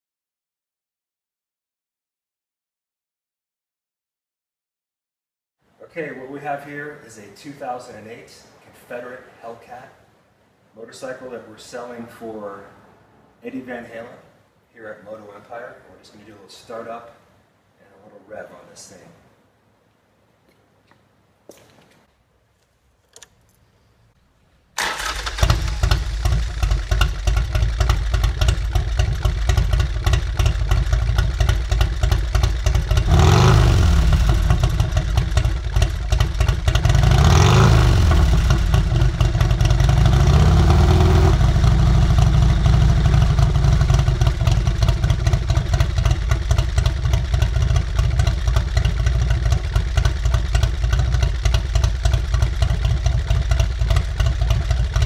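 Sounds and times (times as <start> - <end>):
motorcycle engine idling and revving: 24.9 - 55.0.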